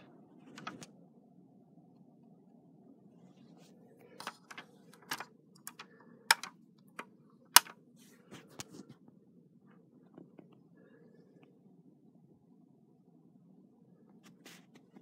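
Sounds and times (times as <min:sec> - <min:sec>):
light handling clicks and taps: 0:04.2 - 0:06.5.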